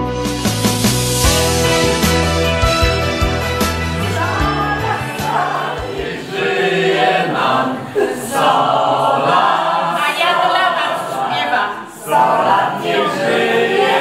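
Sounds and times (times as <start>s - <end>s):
backing music: 0.0s - 7.6s
group of people singing: 3.8s - 14.0s.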